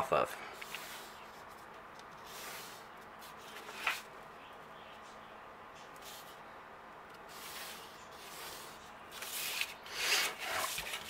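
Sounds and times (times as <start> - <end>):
plastic triangle rubbing on paper: 7.3 - 11.0.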